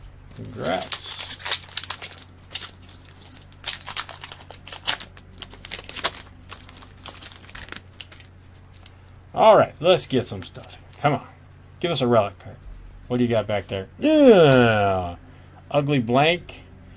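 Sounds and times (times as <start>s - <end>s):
card pack wrapper crinkling: 0.3s - 9.0s.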